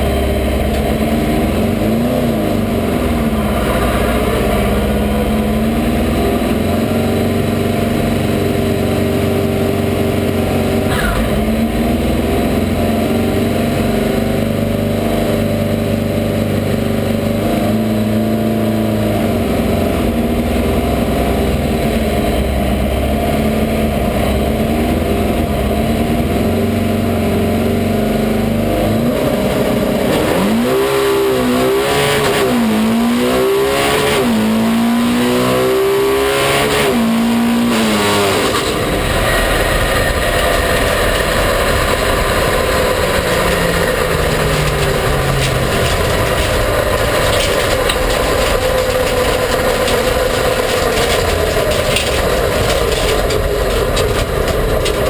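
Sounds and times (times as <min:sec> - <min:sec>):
drag car engine revving: 0:00.0 - 0:55.0
rushing noise of coasting car: 0:00.0 - 0:55.0.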